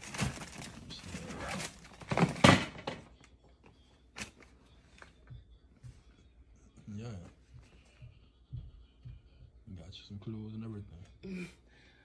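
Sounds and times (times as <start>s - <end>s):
wrapping paper rustling and ripping: 0.0s - 2.3s.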